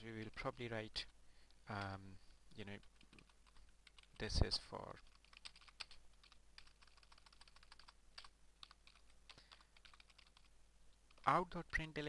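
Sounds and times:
keyboard typing clicks: 0:05.1 - 0:10.5.

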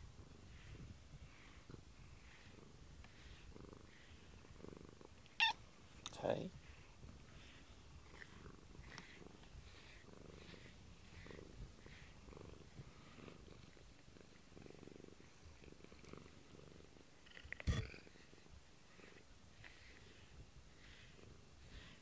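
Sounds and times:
cat purring: 0:00.0 - 0:22.0.

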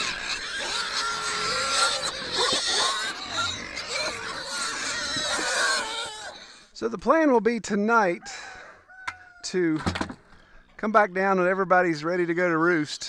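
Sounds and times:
pigs squealing and grunting: 0:00.0 - 0:06.8.

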